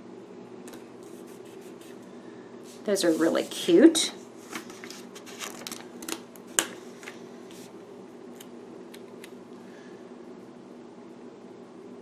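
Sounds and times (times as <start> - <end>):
steady low hum: 0.0 - 12.0
paper rustling: 4.4 - 6.2.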